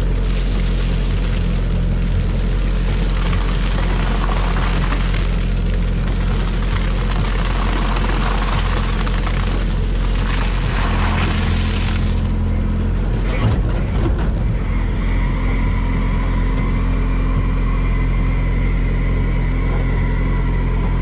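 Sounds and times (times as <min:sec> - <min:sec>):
harvester engine drone: 0:00.0 - 0:21.0
grapes rushing into steel hopper: 0:02.5 - 0:12.5.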